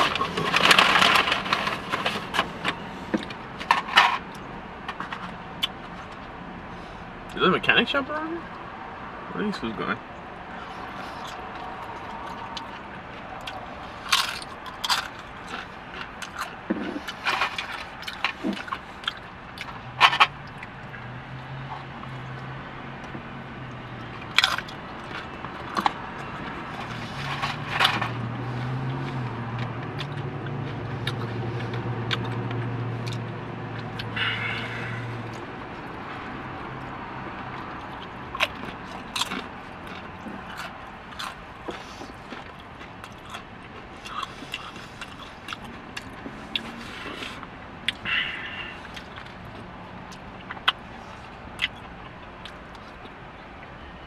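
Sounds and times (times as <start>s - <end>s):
person chewing: 10.6s - 19.8s, 21.5s - 53.2s.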